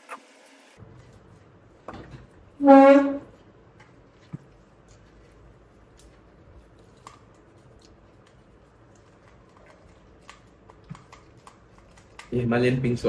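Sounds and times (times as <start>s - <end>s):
clicks of people eating: 5.9s - 12.5s.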